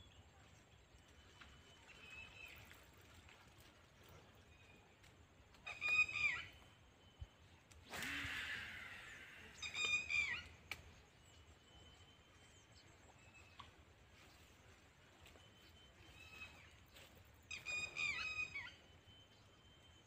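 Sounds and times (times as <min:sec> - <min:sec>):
bird calls with falling end: 0:05.6 - 0:20.0.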